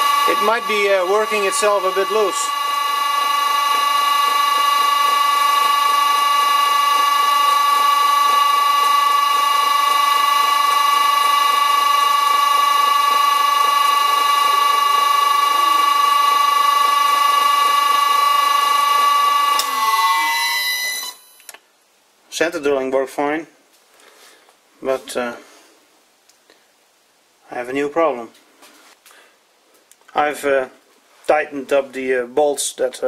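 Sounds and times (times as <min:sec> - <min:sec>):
lathe motor high whine: 0:00.0 - 0:21.5.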